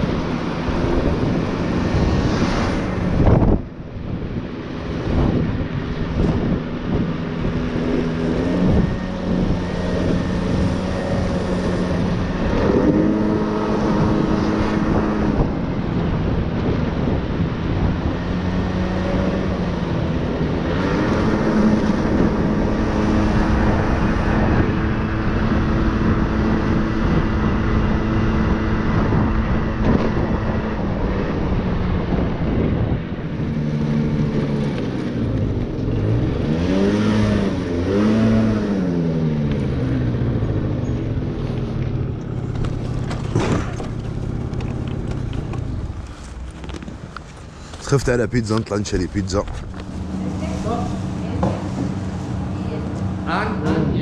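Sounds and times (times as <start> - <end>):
motor scooter engine: 5.5 - 15.8, 31.4 - 47.8.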